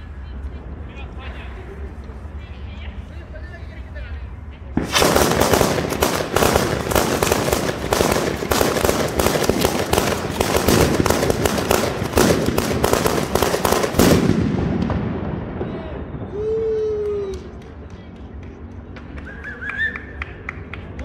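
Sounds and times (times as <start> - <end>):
string of firecrackers exploding: 4.8 - 17.4.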